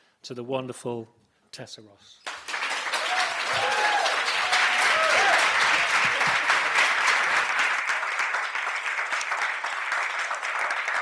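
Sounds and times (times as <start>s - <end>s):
audience applauding: 2.3s - 11.0s.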